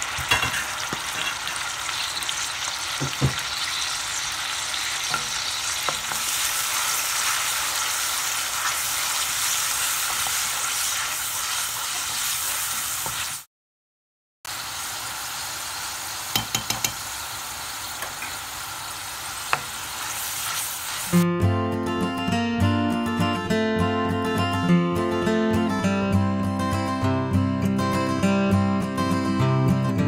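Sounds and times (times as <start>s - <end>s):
onion sizzling in oil: 0.0s - 13.5s, 14.5s - 21.2s
wooden spoon knocking on pan: 3.0s - 3.5s, 16.3s - 17.0s.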